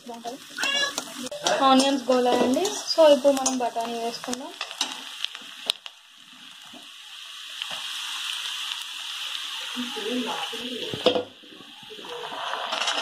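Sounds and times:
onions sizzling in oil: 0:00.0 - 0:13.0
spoon stirring in pan: 0:00.1 - 0:05.8.

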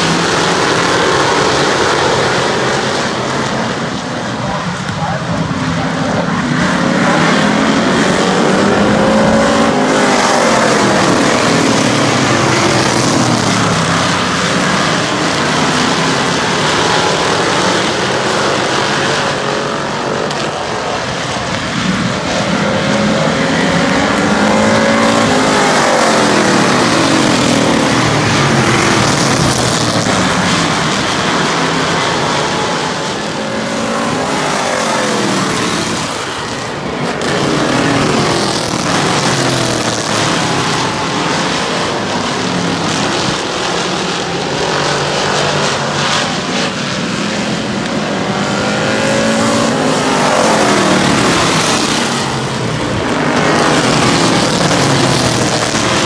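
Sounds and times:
racing car engines: 0:00.0 - 0:56.0.

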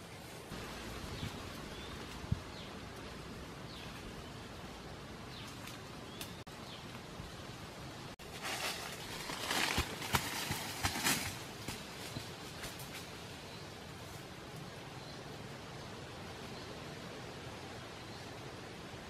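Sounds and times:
rustling through leaves and brush: 0:00.0 - 0:07.1, 0:08.1 - 0:15.2
steady background hiss: 0:00.0 - 0:19.0.

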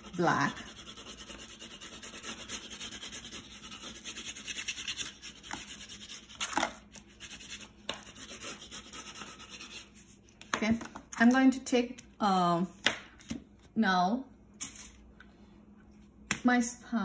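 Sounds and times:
crayon rubbing on paper: 0:00.0 - 0:06.4, 0:07.1 - 0:10.1.

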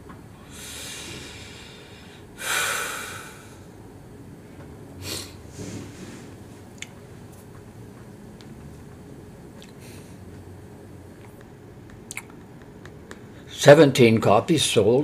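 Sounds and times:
man breathing heavily through nose: 0:00.4 - 0:03.8.

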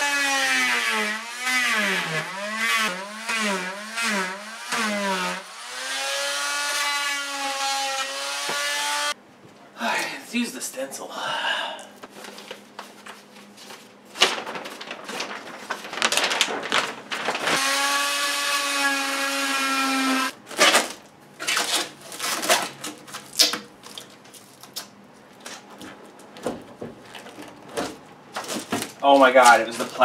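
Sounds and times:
handheld power tool running: 0:00.0 - 0:09.2, 0:17.5 - 0:20.3
paper and plastic wrap rustling: 0:12.0 - 0:17.6, 0:20.4 - 0:30.0.

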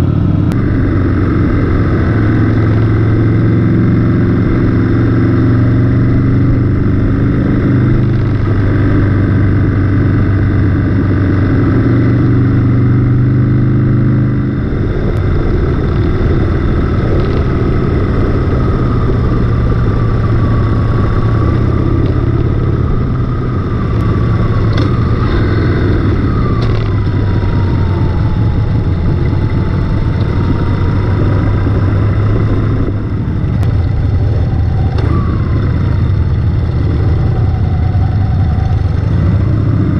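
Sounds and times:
motorcycle engine at road speed: 0:00.0 - 0:39.9.

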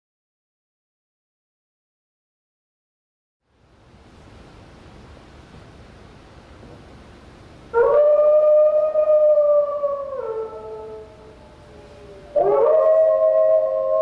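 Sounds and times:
wolves howling: 0:07.8 - 0:14.0.

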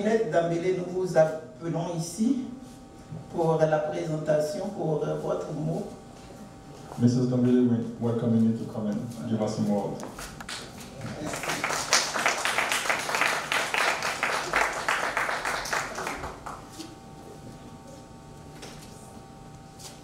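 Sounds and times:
faint steady hum: 0:00.0 - 0:20.0
audience applauding: 0:10.5 - 0:16.7.

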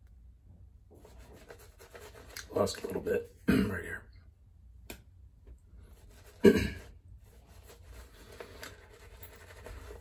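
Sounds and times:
shaving brush rubbing on stubble: 0:01.0 - 0:03.0, 0:05.9 - 0:10.0.

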